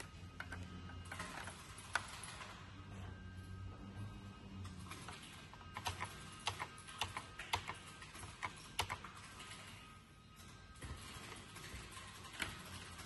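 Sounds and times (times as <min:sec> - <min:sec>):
computer keyboard keys clicking: 0:05.8 - 0:09.5.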